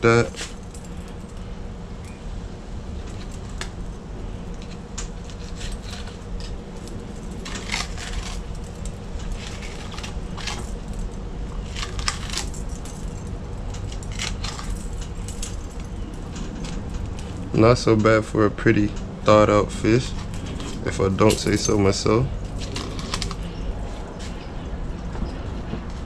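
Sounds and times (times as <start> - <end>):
faint hum: 0.0 - 26.0
low background rumble: 0.0 - 26.0.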